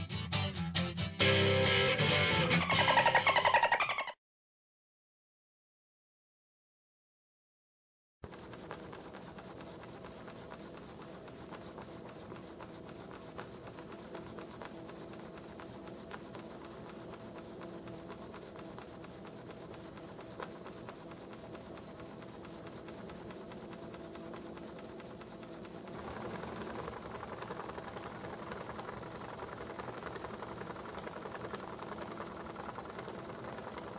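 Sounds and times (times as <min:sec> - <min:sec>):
steam engine rapid ticking: 0:08.3 - 0:33.9.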